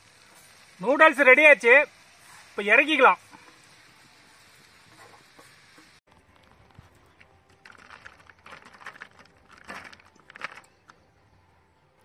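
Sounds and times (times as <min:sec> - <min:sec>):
steady hiss: 0:00.0 - 0:06.0
noodles dropping onto a leaf: 0:07.5 - 0:10.9.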